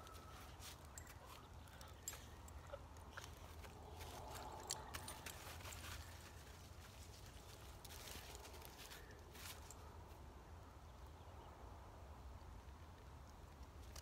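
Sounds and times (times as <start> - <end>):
dogs stepping on dry leaves: 0.0 - 9.8.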